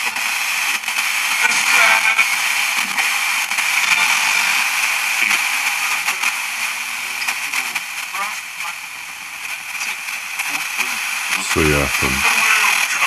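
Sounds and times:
radio static hissing: 0:00.0 - 0:13.0
brief radio sound fragments: 0:11.4 - 0:12.2.

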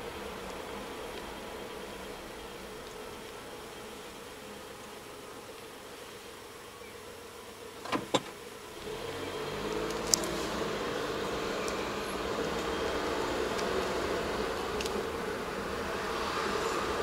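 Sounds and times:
car engine: 0:08.7 - 0:17.0.

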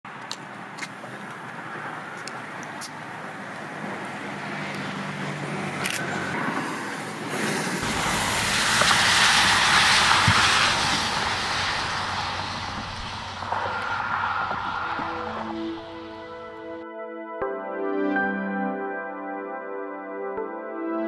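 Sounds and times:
car passing on highway: 0:00.1 - 0:16.8.

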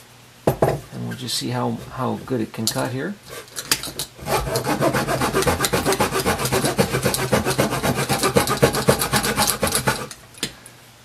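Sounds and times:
saw rasping through wood: 0:04.2 - 0:10.2.

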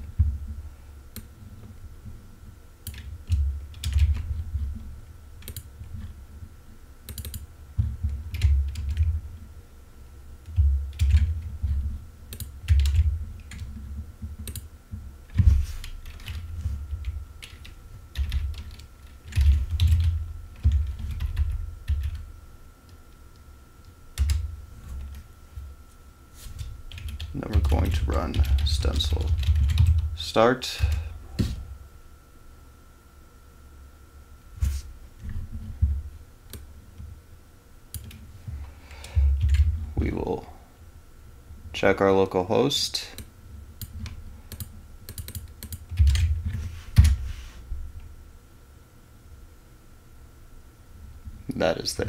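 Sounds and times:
keyboard typing: 0:02.8 - 0:04.4, 0:05.4 - 0:06.0, 0:07.1 - 0:09.2, 0:10.5 - 0:14.7, 0:15.8 - 0:22.2, 0:24.2 - 0:25.2, 0:26.6 - 0:30.1, 0:37.9 - 0:38.2, 0:39.3 - 0:39.7, 0:43.2 - 0:47.2.

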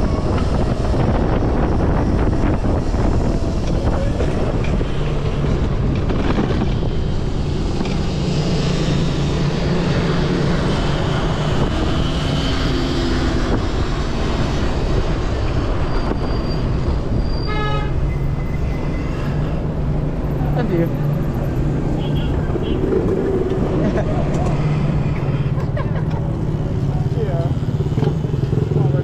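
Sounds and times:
electric dirt bike road noise: 0:00.0 - 0:17.4, 0:18.2 - 0:29.0
wind on microphone: 0:00.0 - 0:17.6
city traffic: 0:00.0 - 0:29.0.

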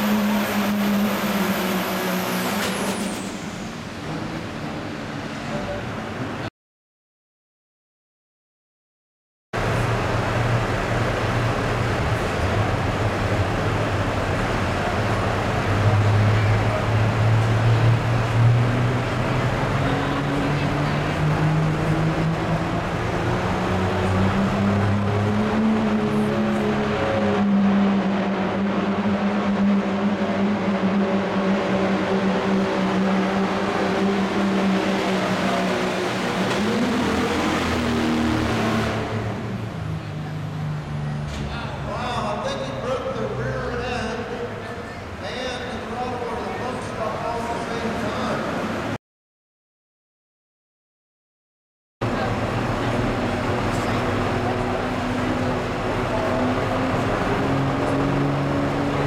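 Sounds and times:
diesel engine revving under load: 0:00.0 - 0:04.8, 0:09.6 - 0:41.9, 0:52.0 - 0:59.0.

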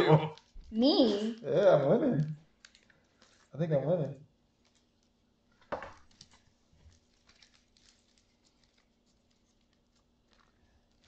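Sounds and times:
trading cards rustling: 0:04.6 - 0:11.0.

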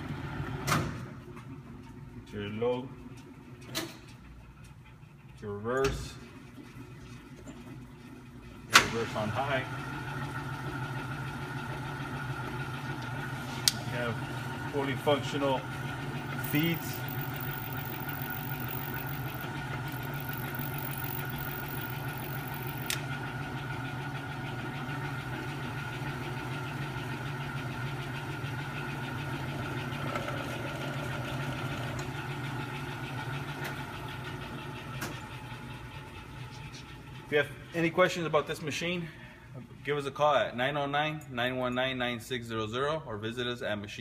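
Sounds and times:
lathe motor hum and whine: 0:09.6 - 0:34.9.

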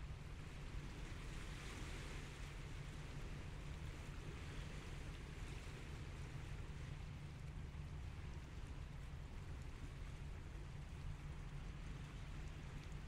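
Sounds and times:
small waves washing onto shore: 0:00.0 - 0:13.0
steady low rumble: 0:00.0 - 0:13.0.

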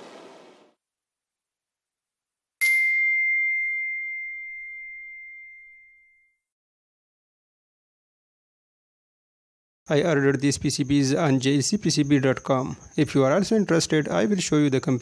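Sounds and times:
bright chime ding: 0:02.6 - 0:06.4.

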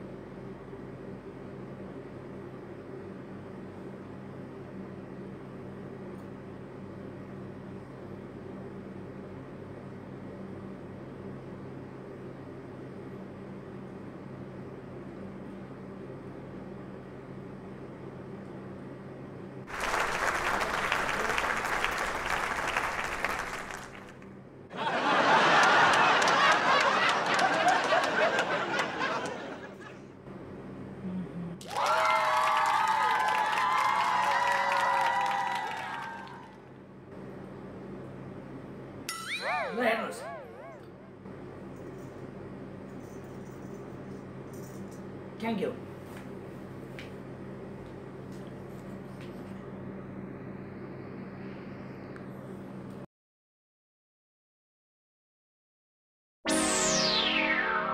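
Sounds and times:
audience applause: 0:19.7 - 0:24.2, 0:24.8 - 0:29.7, 0:31.6 - 0:36.6
audience laughter: 0:24.7 - 0:30.1
low hum: 0:39.1 - 0:42.2, 0:56.5 - 0:57.9.

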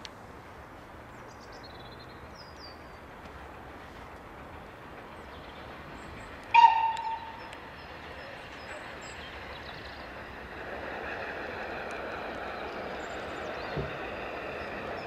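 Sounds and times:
train running noise: 0:00.0 - 0:15.0
faint birdsong: 0:00.5 - 0:15.0
steam locomotive whistle: 0:06.5 - 0:07.5.

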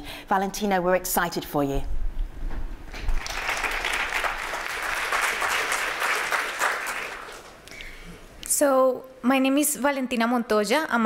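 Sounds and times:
audience applauding: 0:03.0 - 0:07.6.

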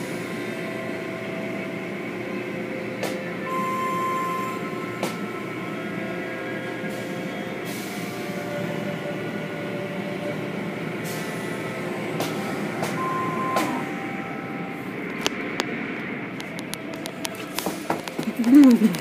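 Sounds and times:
machinery drone: 0:00.0 - 0:19.0
short steady tone: 0:12.9 - 0:14.8.

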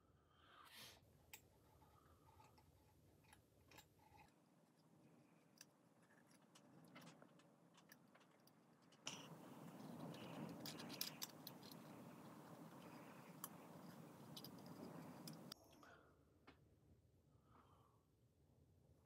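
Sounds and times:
plastic model parts clicking: 0:05.6 - 0:15.6.

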